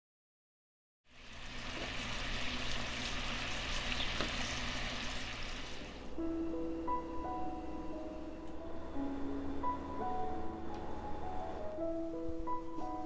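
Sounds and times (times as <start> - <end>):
food sizzling in a frying pan: 1.1 - 6.0
music with held notes: 6.1 - 13.0.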